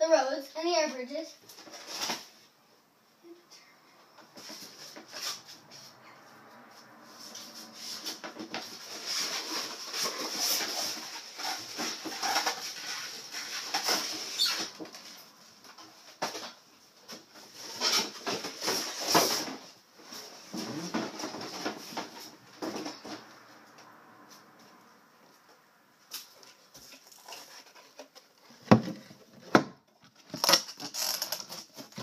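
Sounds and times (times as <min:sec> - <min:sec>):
packaging rustling and crinkling: 0:30.0 - 0:32.0.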